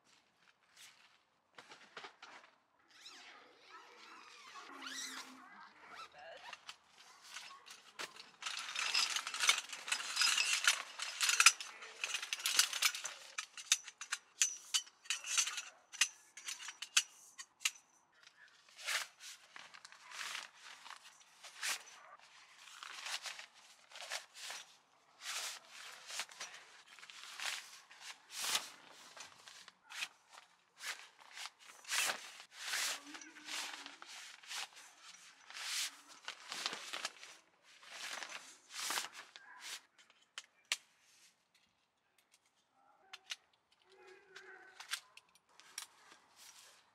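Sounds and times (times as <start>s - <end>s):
fabric rustling: 4.0s - 17.2s, 18.6s - 40.0s
metal poles clicking and knocking: 6.5s - 22.1s.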